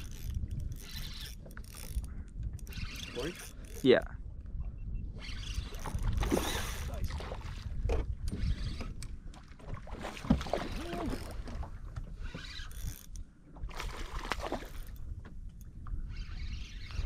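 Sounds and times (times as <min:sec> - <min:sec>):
wind rumbling on microphone: 0:00.0 - 0:17.0
fish thrashing and splashing: 0:09.7 - 0:11.5.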